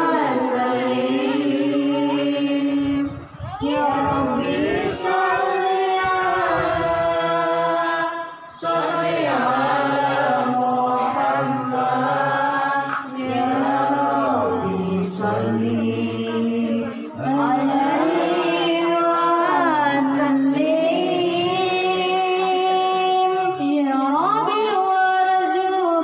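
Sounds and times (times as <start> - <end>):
woman singing into a microphone: 0.0 - 8.6, 14.2 - 26.0.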